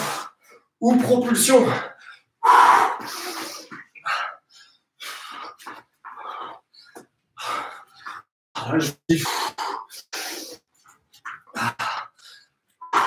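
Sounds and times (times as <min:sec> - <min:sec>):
man breathing hard: 0:01.9 - 0:08.3.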